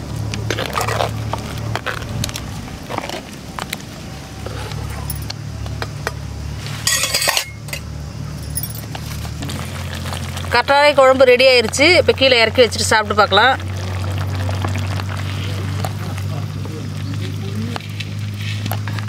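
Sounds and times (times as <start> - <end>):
metal ladle scraping a pot: 4.4 - 5.3, 6.6 - 7.9.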